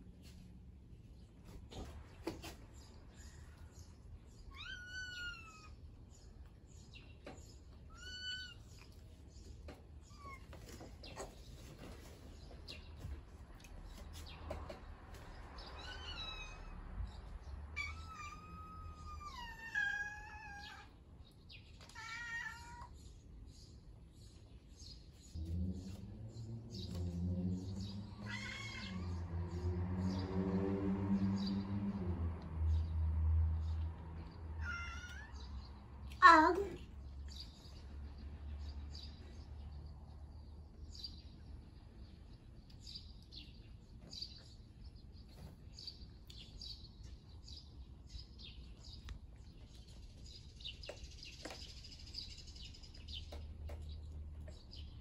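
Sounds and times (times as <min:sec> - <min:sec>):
cat meowing: 0:04.5 - 0:05.8, 0:17.8 - 0:20.9, 0:21.8 - 0:22.9, 0:28.2 - 0:29.2, 0:34.6 - 0:35.4, 0:36.1 - 0:36.8.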